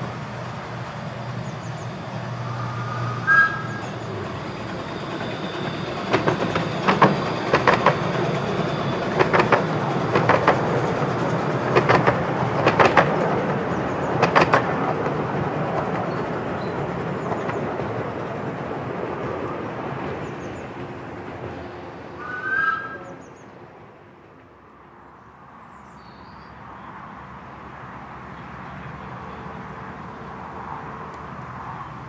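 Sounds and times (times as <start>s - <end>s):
train rumbling past: 0.0s - 32.0s
brief high tone: 3.0s - 4.0s
wheels clicking over rail joints: 3.6s - 19.4s.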